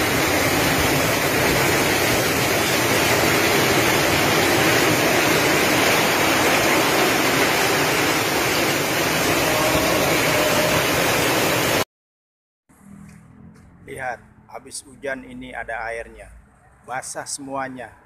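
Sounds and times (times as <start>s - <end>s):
heavy rain pouring: 0.0s - 11.9s.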